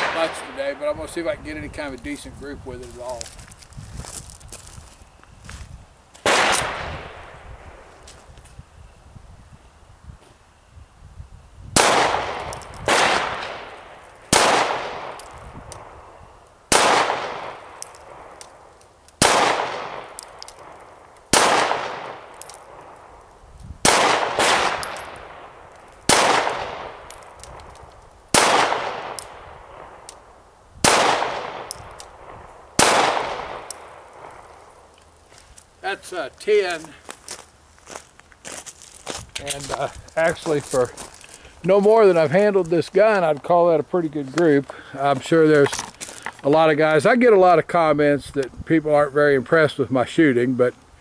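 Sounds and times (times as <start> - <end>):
pistol shots echoing: 0.0 - 0.9, 6.2 - 7.2, 11.8 - 15.4, 16.7 - 18.5, 19.2 - 23.1, 23.8 - 27.4, 28.3 - 30.1, 30.8 - 34.6.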